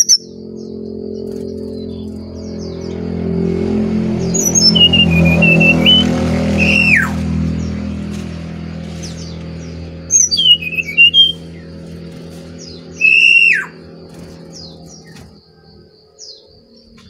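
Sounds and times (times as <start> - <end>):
bird singing whistled phrases: 0.0 - 0.2, 4.4 - 7.2, 10.1 - 11.5, 13.0 - 13.8
low steady hum: 0.0 - 17.0.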